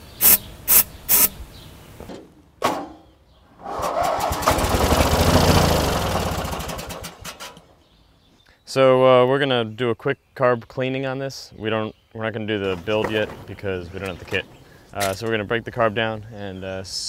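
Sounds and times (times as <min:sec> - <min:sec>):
starter fluid spray hisses: 0:00.0 - 0:01.4.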